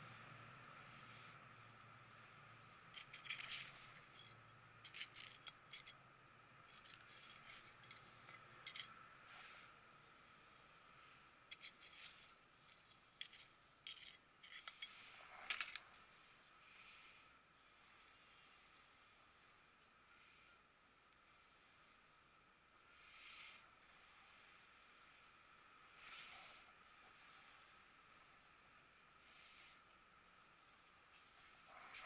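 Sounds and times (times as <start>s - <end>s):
trowel scraping gritty soil: 11.5s - 14.9s.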